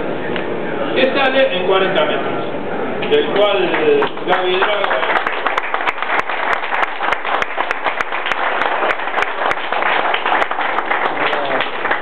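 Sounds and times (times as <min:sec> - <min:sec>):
group applauding: 0:03.0 - 0:12.0.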